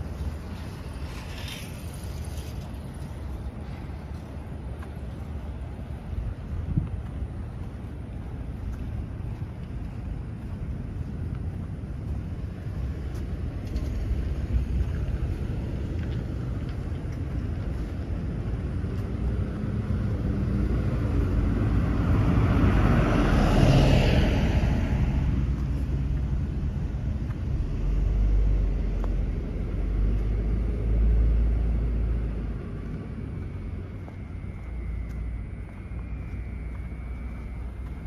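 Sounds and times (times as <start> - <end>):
vehicle passing by: 0.0 - 4.3, 12.8 - 38.0
outdoor background noise: 0.0 - 38.0.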